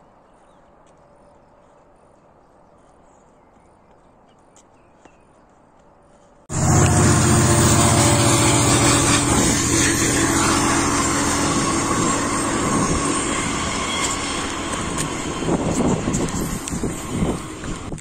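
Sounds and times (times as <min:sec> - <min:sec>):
rail noise: 0:06.5 - 0:18.0
train passing with steady hum: 0:06.5 - 0:18.0.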